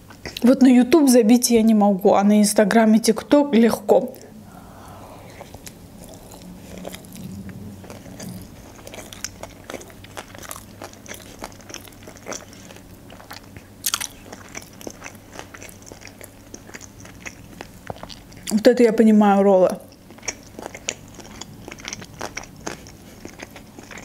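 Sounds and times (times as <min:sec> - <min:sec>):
wet chewing clicks: 0:05.3 - 0:18.7, 0:19.7 - 0:24.0.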